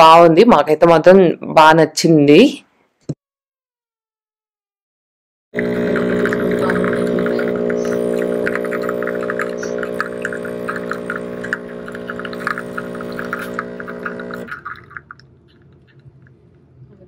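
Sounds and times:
coffee streaming into mug: 0:05.6 - 0:16.6
coffee dripping: 0:05.6 - 0:16.7
coffee machine pump humming: 0:05.6 - 0:16.7.

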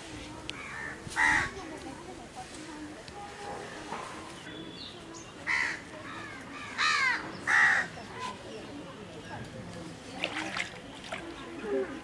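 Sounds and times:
crow cawing: 0:05.5 - 0:07.9.

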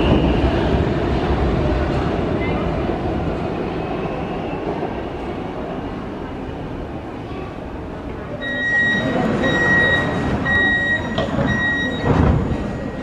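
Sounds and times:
high door warning beeps: 0:08.4 - 0:13.0
train doors thumping shut: 0:11.0 - 0:12.7.

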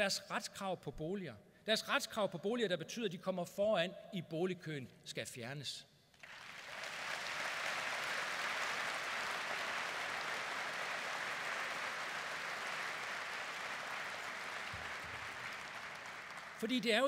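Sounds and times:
audience applauding: 0:06.2 - 0:17.0.

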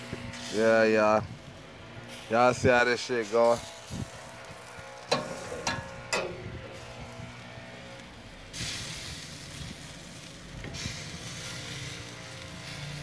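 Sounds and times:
meat sizzling on grill: 0:00.0 - 0:13.0
metal grill clanks: 0:05.0 - 0:06.9.

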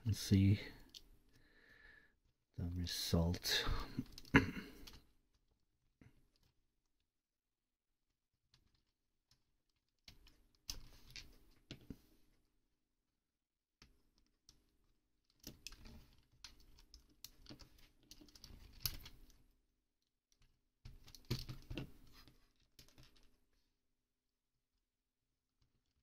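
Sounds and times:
plastic toy parts clicking: 0:15.2 - 0:19.4.

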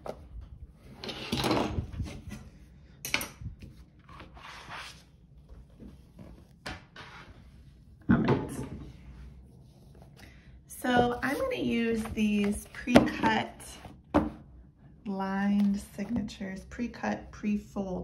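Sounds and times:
cutting mat scraping on desk: 0:04.1 - 0:05.0.

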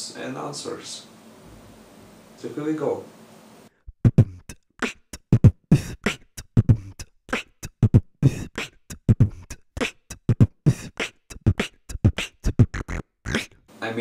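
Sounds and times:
beatboxing: 0:03.8 - 0:13.7.

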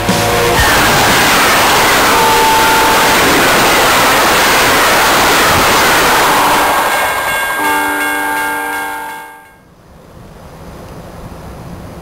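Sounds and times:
train cars rushing past: 0:00.0 - 0:12.0
train horn chord: 0:01.7 - 0:03.7, 0:06.4 - 0:09.6.

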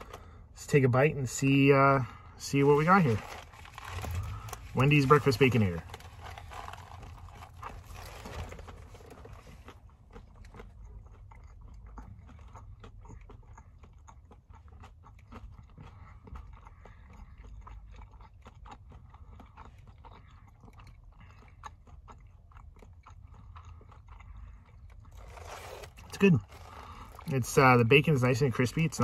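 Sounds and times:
steady low rumble: 0:00.0 - 0:12.8
man chewing crunchy food: 0:00.0 - 0:29.0.

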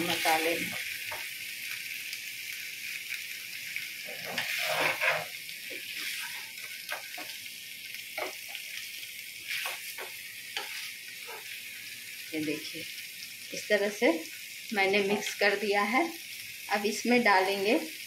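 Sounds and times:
food sizzling in a pan: 0:00.0 - 0:18.0
spatula scraping a pan: 0:04.0 - 0:07.4, 0:09.4 - 0:11.6.

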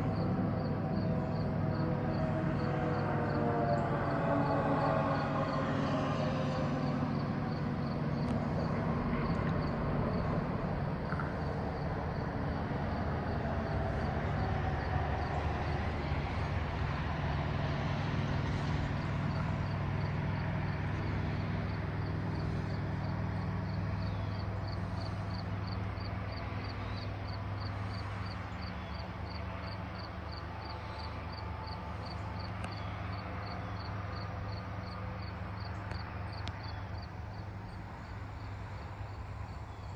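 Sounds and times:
distant wailing tone: 0:00.0 - 0:10.7
distant low rumble: 0:00.0 - 0:34.2.

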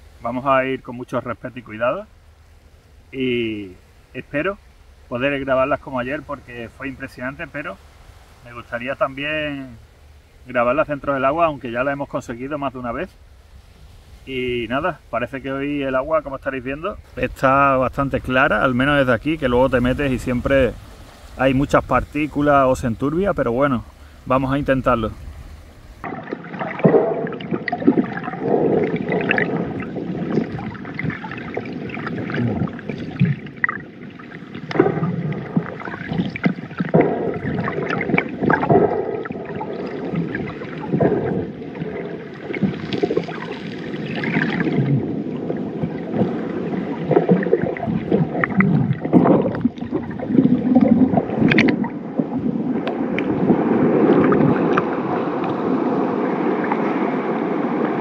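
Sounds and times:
underwater sloshing and gurgling: 0:15.0 - 0:58.0
wash of water: 0:26.0 - 0:58.0.

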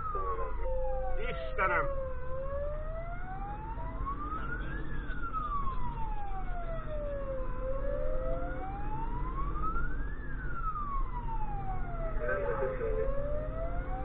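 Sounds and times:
fire engine siren wailing: 0:00.0 - 0:14.0
truck engine rumble: 0:00.0 - 0:14.0.

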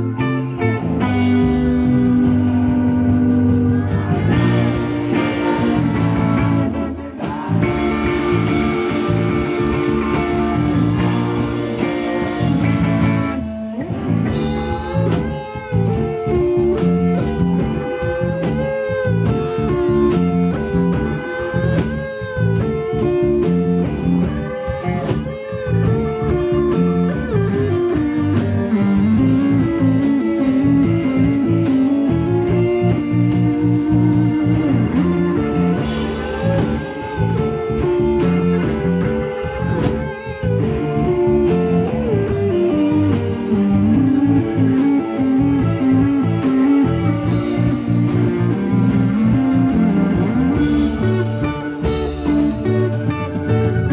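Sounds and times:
bass guitar: 0:00.0 - 0:53.9
drums: 0:00.0 - 0:53.9
electric guitar lead with bent notes: 0:00.0 - 0:53.9.

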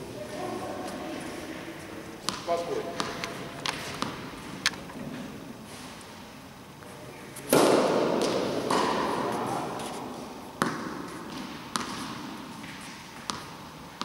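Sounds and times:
tennis ball bouncing on court: 0:02.2 - 0:04.3, 0:07.5 - 0:09.5, 0:10.6 - 0:14.0
tennis ball struck with racket: 0:02.2 - 0:04.3, 0:07.5 - 0:09.6, 0:10.6 - 0:14.0.

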